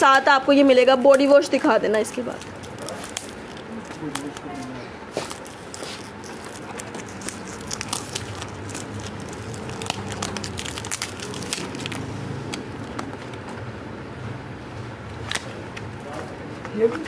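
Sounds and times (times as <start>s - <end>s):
packaging crinkling and clicking: 1.9s - 13.6s.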